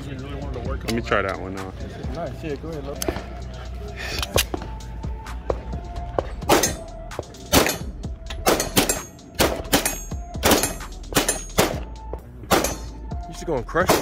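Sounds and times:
pistol shots: 6.4 - 13.0, 13.8 - 14.0
steel targets ringing: 7.6 - 11.8, 12.5 - 13.1.

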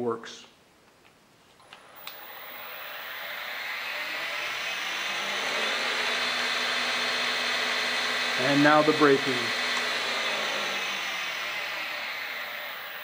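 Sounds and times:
wood lathe motor whirring: 1.6 - 13.0.

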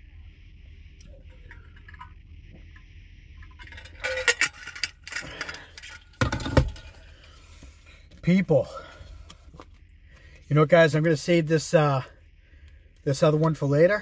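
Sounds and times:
steady low hum: 0.0 - 14.0
clattering and clinking: 3.5 - 7.0.

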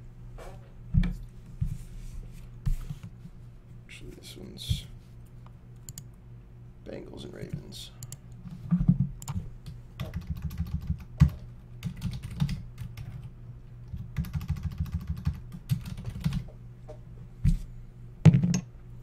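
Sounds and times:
computer keyboard typing: 10.0 - 13.3, 13.9 - 16.4.

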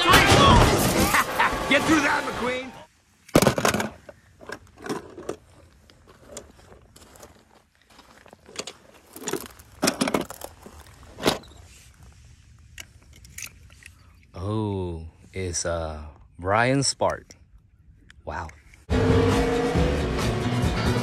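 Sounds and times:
footsteps on gravel: 5.4 - 11.6.

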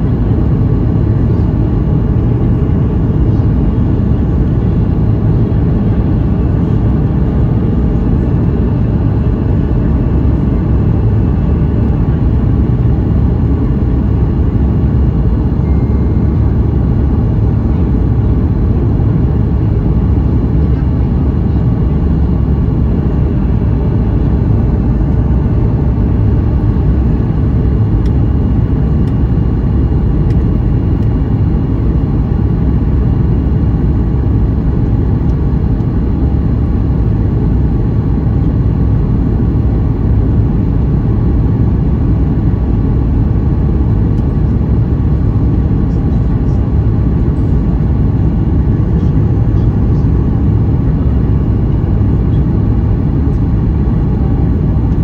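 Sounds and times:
airplane cabin rumble: 0.0 - 55.0.

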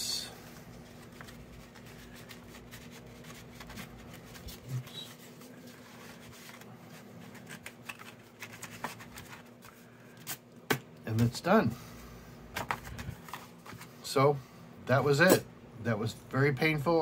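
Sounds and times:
paper rustling and scraping: 0.4 - 10.4.

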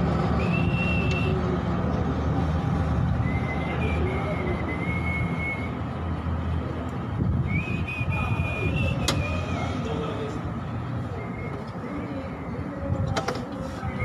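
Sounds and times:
person whistling a tune: 0.4 - 1.5, 3.2 - 5.8, 7.4 - 9.3.

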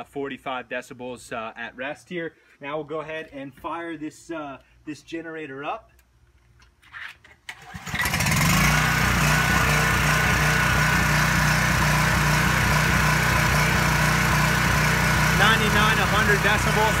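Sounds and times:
generator engine running: 7.6 - 17.0.

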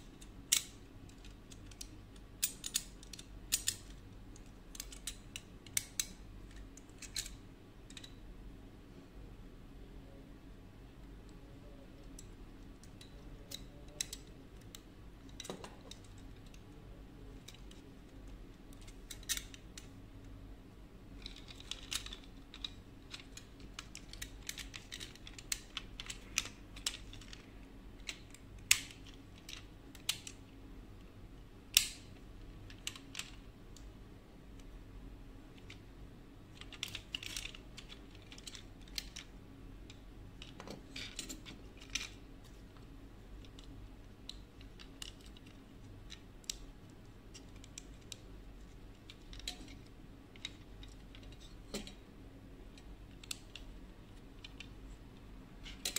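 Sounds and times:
plastic toy parts clicking: 0.2 - 8.2, 12.0 - 16.6, 17.4 - 19.9, 21.2 - 30.4, 31.7 - 32.1, 36.5 - 42.6, 43.4 - 52.0, 52.7 - 54.8, 55.6 - 55.9
sharp plastic snaps: 21.2 - 30.4, 31.7 - 32.1.

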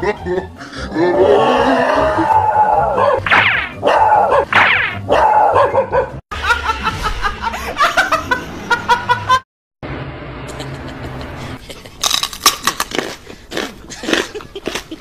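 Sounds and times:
dog barking and yelping: 2.8 - 6.2
woman laughing hard: 6.4 - 9.4.

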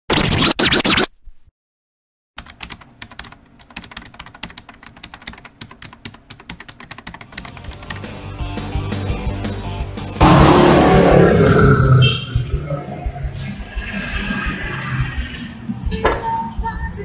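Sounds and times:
keyboard typing clicks: 2.4 - 8.1
swell of noise: 10.2 - 15.8.

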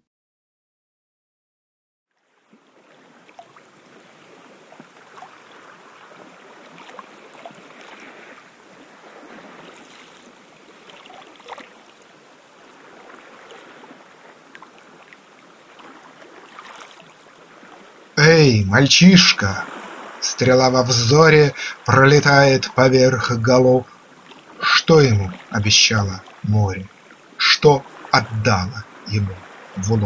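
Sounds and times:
gentle surf on sandy beach: 2.1 - 30.0.

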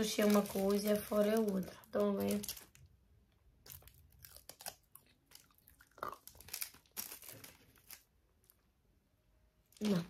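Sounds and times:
crunchy snack being chewed: 3.6 - 8.0.

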